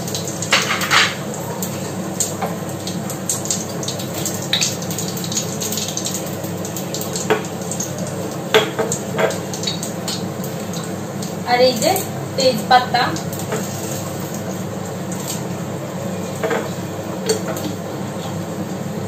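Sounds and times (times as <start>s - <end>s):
seeds sizzling in hot oil: 0.0s - 18.4s
utensils clinking against pan: 0.5s - 1.2s, 8.5s - 10.2s.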